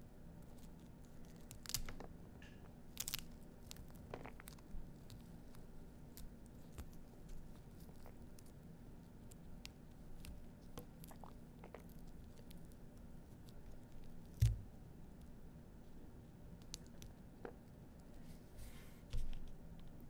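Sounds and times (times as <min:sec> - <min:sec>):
seeds ticking and crackling: 0:00.4 - 0:15.4.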